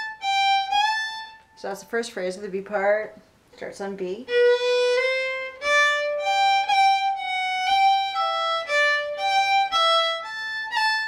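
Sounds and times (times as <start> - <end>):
fiddle playing slowly: 0.0 - 1.7, 4.2 - 11.0.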